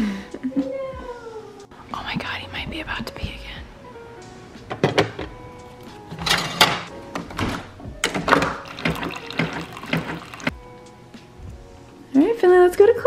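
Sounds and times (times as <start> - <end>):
coffee streaming and sputtering: 8.6 - 10.5.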